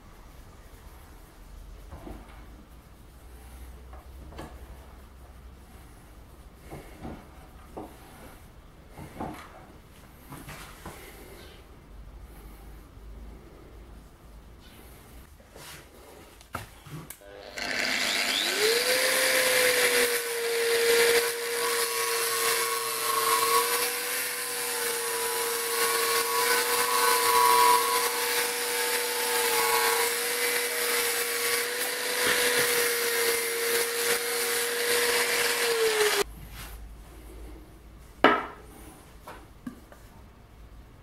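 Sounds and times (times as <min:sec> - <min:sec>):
angle grinder motor whine: 0:17.2 - 0:36.2
grinder cutting steel rod: 0:17.2 - 0:36.2.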